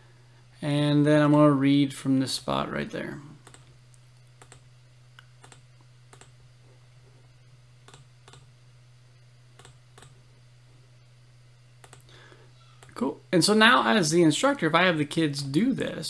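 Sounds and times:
steady low hum: 0.0s - 16.0s
computer mouse clicking: 3.4s - 3.7s, 4.4s - 4.6s, 5.2s - 6.4s, 9.6s - 10.2s, 11.8s - 12.1s.

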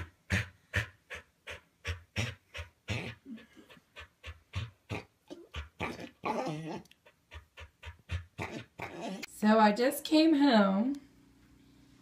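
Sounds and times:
dog panting rapidly: 0.0s - 5.8s, 7.0s - 8.8s.

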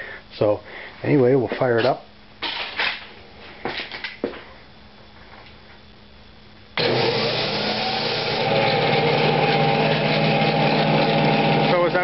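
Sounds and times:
vacuum motor humming: 6.8s - 12.0s.

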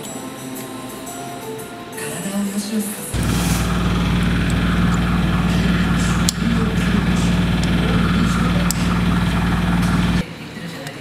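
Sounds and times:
two-stroke engine idling: 3.2s - 10.2s.

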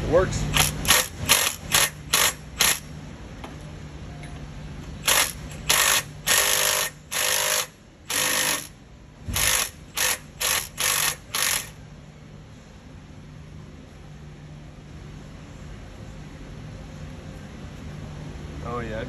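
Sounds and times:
power wrench trigger bursts: 0.5s - 2.9s, 5.0s - 8.7s, 9.4s - 11.8s.

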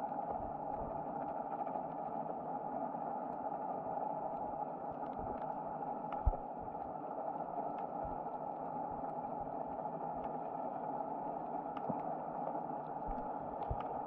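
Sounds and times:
faint clicks: 11.7s - 14.0s.

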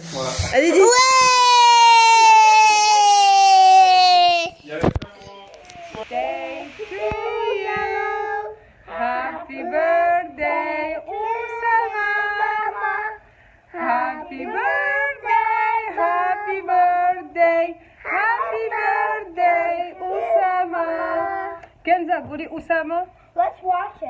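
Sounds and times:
woman and children singing: 5.8s - 21.8s.

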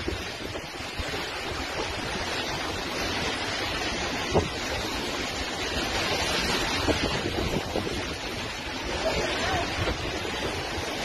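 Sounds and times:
heavy rain: 0.0s - 11.0s
storm wind: 0.0s - 11.0s.

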